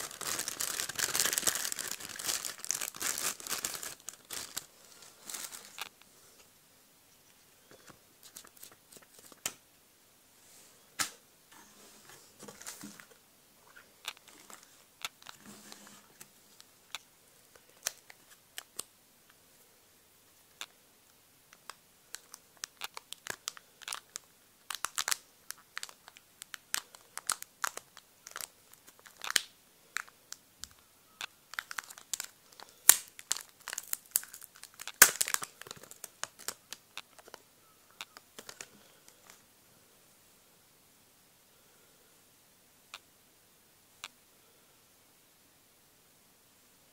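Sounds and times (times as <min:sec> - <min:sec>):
plastic wrapping crinkling: 0:00.0 - 0:06.0, 0:17.5 - 0:18.8, 0:21.6 - 0:30.1, 0:31.5 - 0:37.4, 0:38.0 - 0:39.4.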